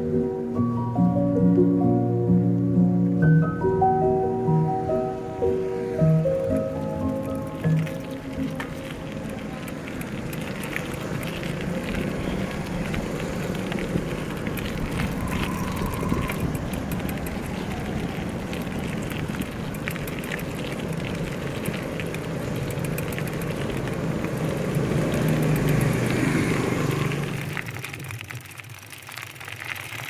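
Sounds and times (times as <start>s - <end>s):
street traffic noise: 0.0s - 30.0s
vehicle engine running: 5.9s - 27.9s.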